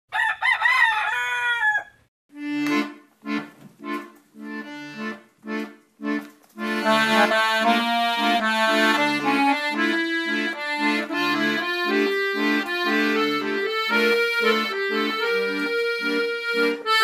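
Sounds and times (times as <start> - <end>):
rooster crowing: 0.1 - 2.1
accordion chords: 2.3 - 17.0.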